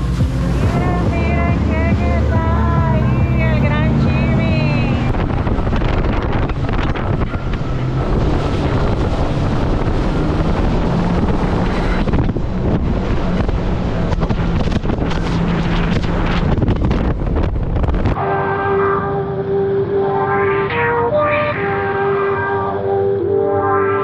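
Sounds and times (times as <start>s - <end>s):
water spray rushing off hull: 0.0s - 2.2s, 5.1s - 18.0s
wind buffeting microphone: 0.0s - 18.2s
jet ski engine hum: 0.0s - 24.0s.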